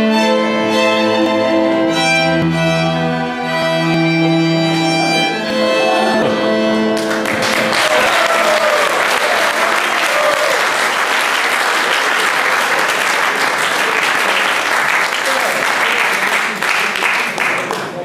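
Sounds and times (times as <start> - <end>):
string ensemble holding chord: 0.0 - 7.9
audience applause: 7.0 - 18.0.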